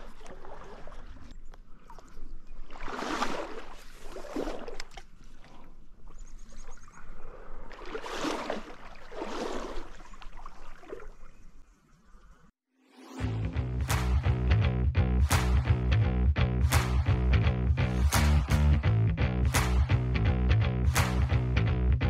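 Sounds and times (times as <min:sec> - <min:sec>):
stream water sloshing and splashing: 0:00.0 - 0:11.8
guitar music: 0:13.2 - 0:22.0.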